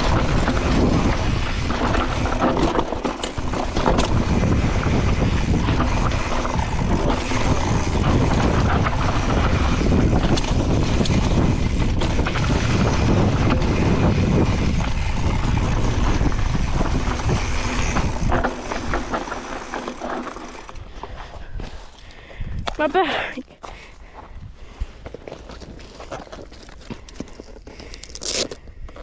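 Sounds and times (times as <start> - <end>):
wind rushing over microphone: 0.0 - 19.8, 20.6 - 22.8
bike rattling: 0.0 - 23.3, 24.6 - 29.0
tyres on dirt: 0.0 - 29.0.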